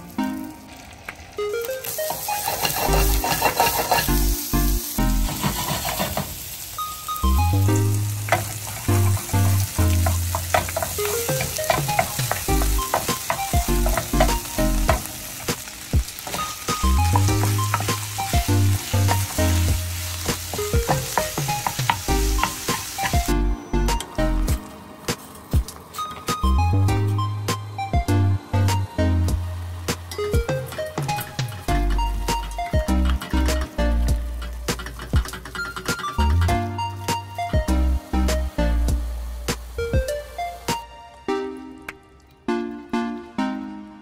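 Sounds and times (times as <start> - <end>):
food sizzling in a frying pan: 0.0 - 23.4
wooden spatula scraping a pan: 2.3 - 4.2, 5.2 - 6.4
background music with bass line: 2.8 - 5.6, 7.2 - 15.2, 16.7 - 24.6, 26.4 - 35.3, 36.2 - 41.8.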